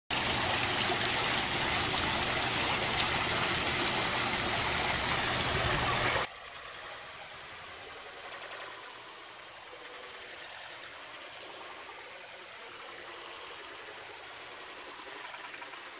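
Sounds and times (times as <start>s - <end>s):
fountain water splashing: 0.1s - 6.3s.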